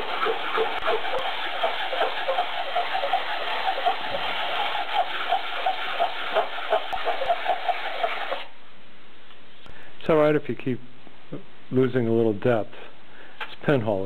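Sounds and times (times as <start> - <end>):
plastic scraping on sandpaper: 0.0 - 8.5.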